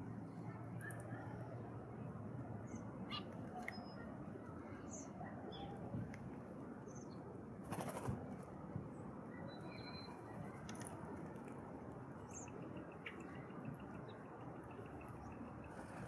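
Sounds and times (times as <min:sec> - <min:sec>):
wing flaps: 0:07.6 - 0:08.2
faint high bird chirps: 0:09.3 - 0:10.5.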